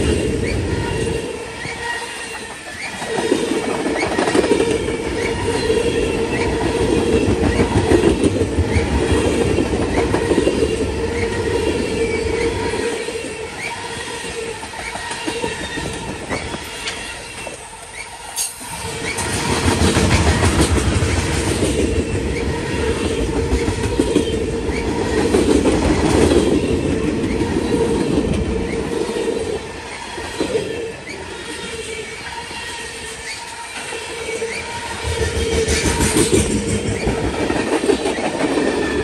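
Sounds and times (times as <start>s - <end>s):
train rumble: 0.0s - 39.0s
train wheels clicking over rail joints: 1.5s - 29.5s, 34.5s - 39.0s.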